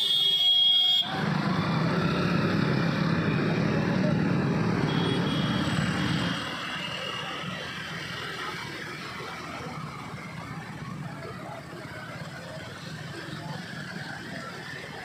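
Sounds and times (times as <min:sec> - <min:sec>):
motorcycle engines running: 0:01.0 - 0:15.0.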